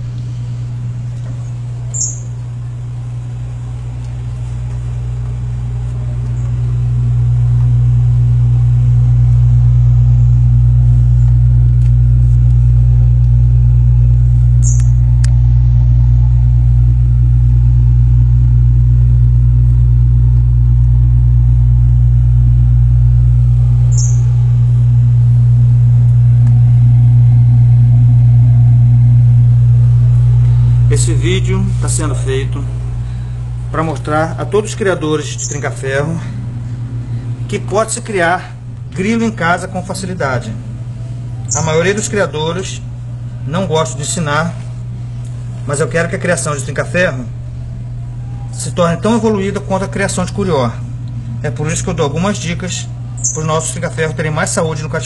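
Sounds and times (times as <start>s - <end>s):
loud low hum: 0.0s - 55.0s.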